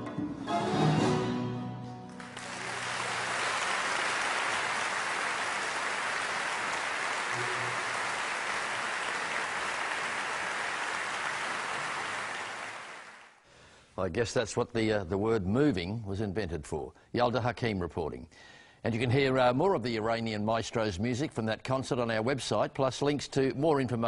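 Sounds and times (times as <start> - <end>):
music: 0.0 - 3.0, 7.3 - 8.3
audience applauding: 2.1 - 13.4.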